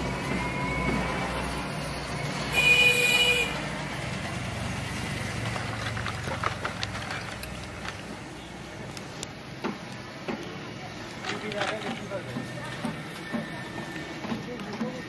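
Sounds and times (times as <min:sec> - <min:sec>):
street traffic: 0:00.0 - 0:15.0
vehicle horn: 0:02.5 - 0:03.6.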